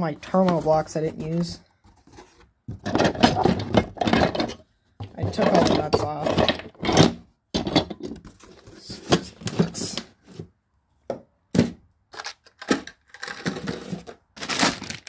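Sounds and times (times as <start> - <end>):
cardboard rustling: 0.2 - 4.0
bag of metal nuts rustling: 12.2 - 15.0.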